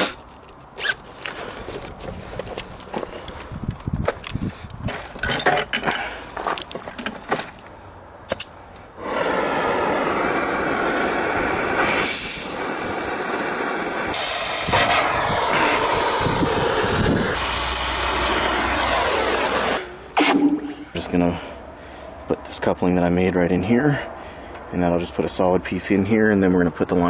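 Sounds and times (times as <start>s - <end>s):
metal clinks and handling: 0.2s - 7.7s
torch hissing: 9.0s - 20.4s.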